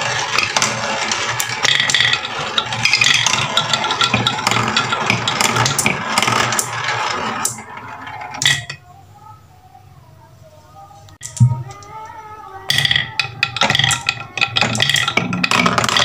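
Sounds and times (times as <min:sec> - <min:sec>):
marbles clicking against wood: 0:00.0 - 0:08.8, 0:12.7 - 0:16.0
marbles rolling on wooden track: 0:00.0 - 0:08.8, 0:12.6 - 0:16.0.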